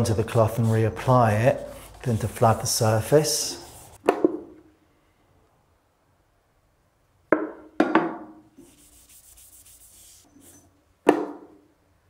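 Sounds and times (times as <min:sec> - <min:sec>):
cloth rubbing hiss: 0:00.0 - 0:04.0, 0:08.6 - 0:10.6.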